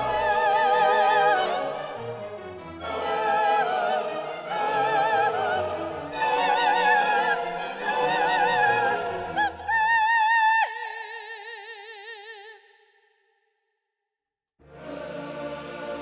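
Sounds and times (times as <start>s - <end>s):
orchestral accompaniment: 0.0s - 9.5s
operatic singing: 0.0s - 12.6s, 14.7s - 16.0s.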